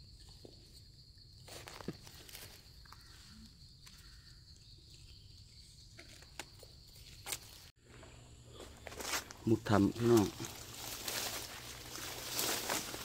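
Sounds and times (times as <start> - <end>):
footsteps in dry leaves: 8.6 - 13.0.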